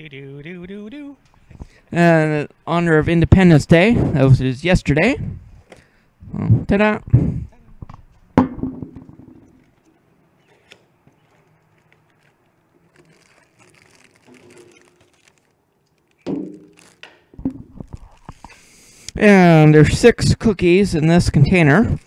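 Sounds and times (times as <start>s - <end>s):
handling bump: 7.9s - 9.6s
sharp knock: 8.4s - 9.5s.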